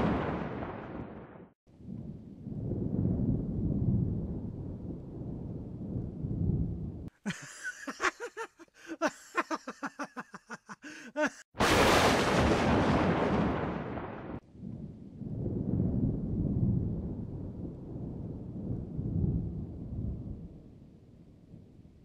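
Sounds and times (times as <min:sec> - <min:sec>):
loud thunderclap: 0:00.0 - 0:01.6, 0:11.6 - 0:20.5
high laugh in bursts: 0:07.2 - 0:11.5.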